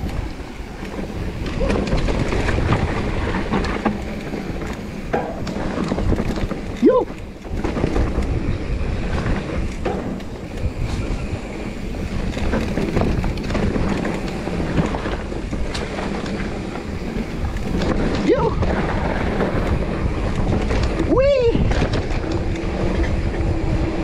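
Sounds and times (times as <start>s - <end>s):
bike clicking and rattling: 0.0s - 24.0s
wind buffeting microphone: 0.0s - 24.0s.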